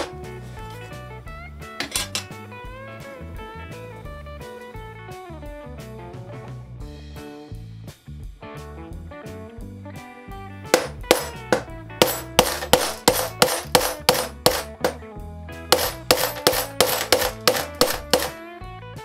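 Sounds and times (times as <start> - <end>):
guitar background music: 0.0 - 19.0
hammer striking awl: 10.8 - 15.0, 15.7 - 18.4.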